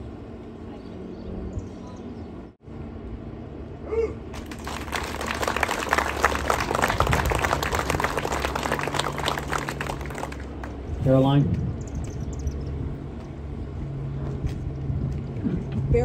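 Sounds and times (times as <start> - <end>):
crowd applauding: 4.3 - 10.8.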